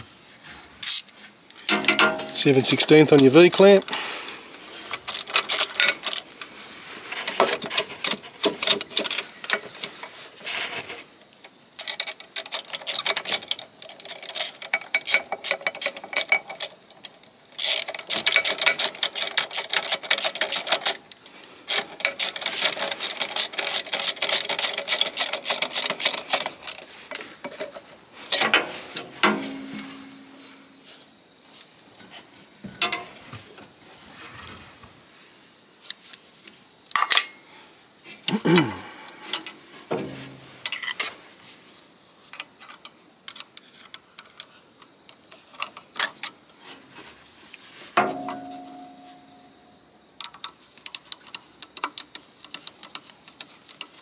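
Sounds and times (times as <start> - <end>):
ratchet spanner clicking: 17.6 - 21.0, 21.7 - 26.8.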